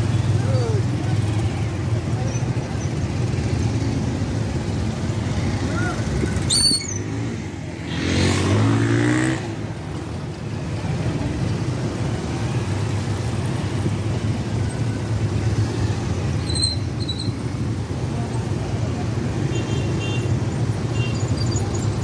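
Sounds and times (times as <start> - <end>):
motorcycles and scooters passing: 0.0 - 22.0.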